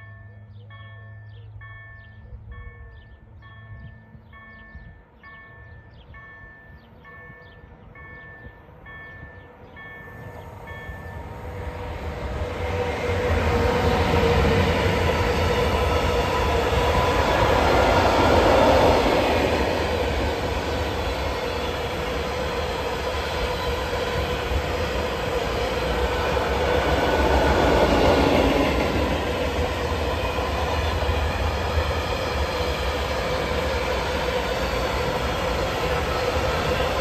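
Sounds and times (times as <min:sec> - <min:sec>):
train wheels rumbling on track: 0:07.5 - 0:37.0.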